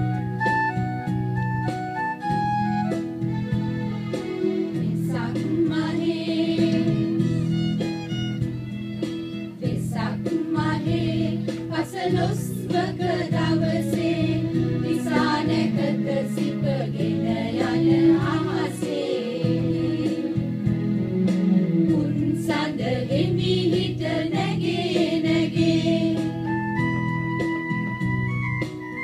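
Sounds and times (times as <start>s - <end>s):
instrumental backing: 0.0s - 29.0s
women singing together: 4.8s - 7.1s, 9.6s - 20.5s, 21.8s - 26.4s.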